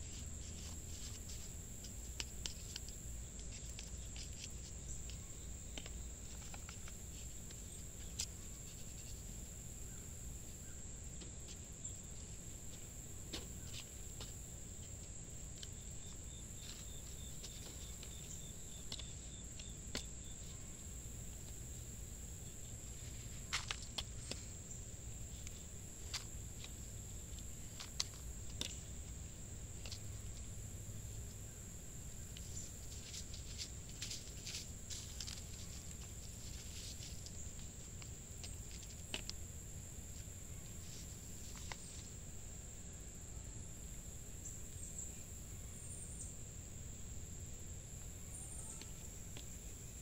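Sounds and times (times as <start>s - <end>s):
plastic pots being handled: 0.0s - 9.2s
crickets droning: 0.0s - 50.0s.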